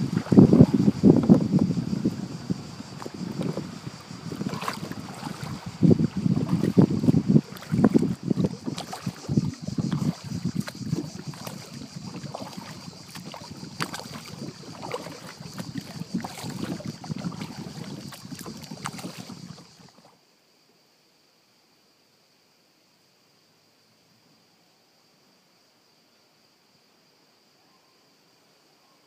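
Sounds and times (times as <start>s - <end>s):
paddle splashing in water: 0.0s - 20.2s
water dripping: 2.9s - 20.0s
knocks on canoe: 6.4s - 19.4s.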